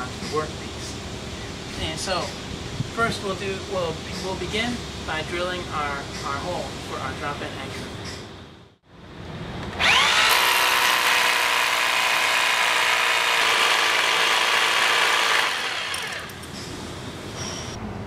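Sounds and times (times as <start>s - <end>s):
rotary hammer drilling into concrete: 9.8s - 16.5s.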